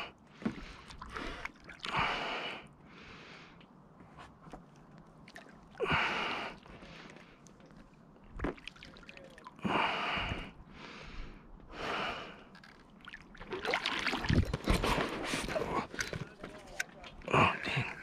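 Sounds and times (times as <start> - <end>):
person breathing hard: 0.0 - 3.7, 5.8 - 7.5, 9.6 - 12.5.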